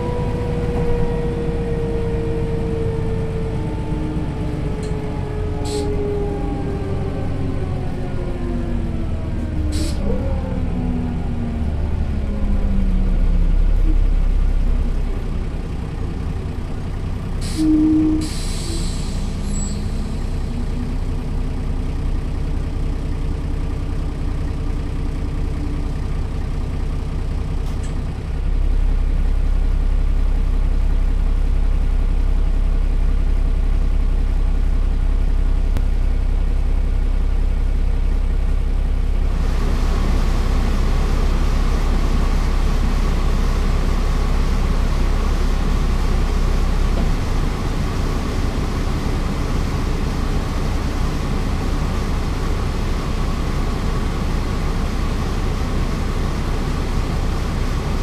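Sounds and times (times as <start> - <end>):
bus diesel engine idling: 0.0 - 58.0.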